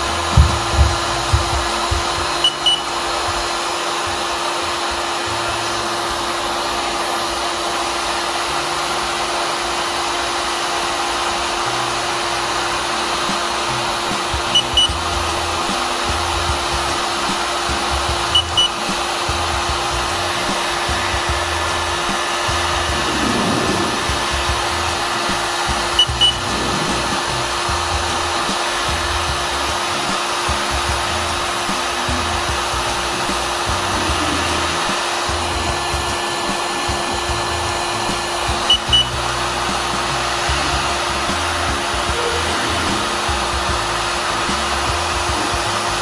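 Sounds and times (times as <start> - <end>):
heat gun blowing: 0.0 - 46.0
thermometer double beep: 2.4 - 2.9, 14.5 - 15.0, 18.3 - 18.8, 26.0 - 26.5, 38.7 - 39.2.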